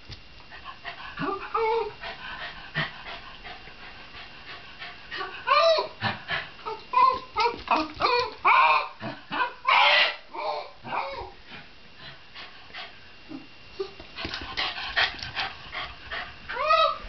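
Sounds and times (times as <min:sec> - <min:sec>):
dog whining and yipping: 0:01.2 - 0:02.0, 0:06.6 - 0:11.4, 0:16.5 - 0:17.0
dog harsh cries: 0:06.7 - 0:11.3, 0:16.5 - 0:17.0.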